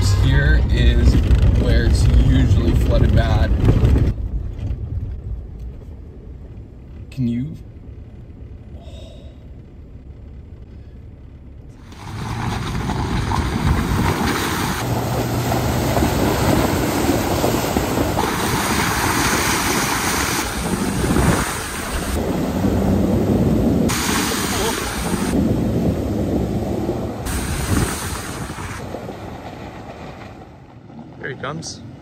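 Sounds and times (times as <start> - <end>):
vehicle rumble inside cab: 0.0 - 32.0
trucks spraying floodwater: 11.8 - 30.2.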